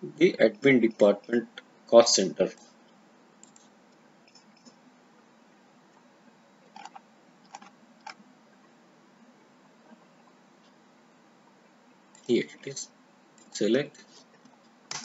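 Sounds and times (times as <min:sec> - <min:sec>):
computer mouse clicks: 0:03.4 - 0:03.7, 0:06.7 - 0:08.2.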